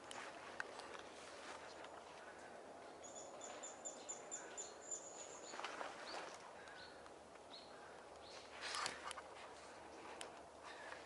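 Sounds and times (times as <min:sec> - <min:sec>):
outdoor background noise: 0:00.0 - 0:11.0
small bird chirping: 0:03.0 - 0:08.8.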